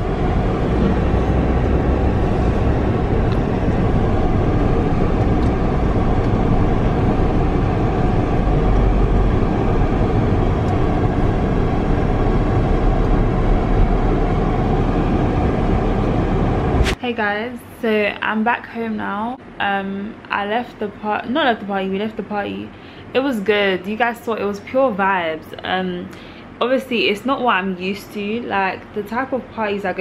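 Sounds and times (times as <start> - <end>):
car engine and road noise inside: 0.0 - 17.0.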